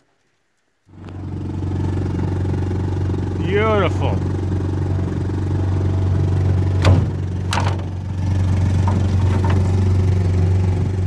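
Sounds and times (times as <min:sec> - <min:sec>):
boat motor idling: 0:00.9 - 0:11.0
clatters in boat: 0:06.8 - 0:10.4.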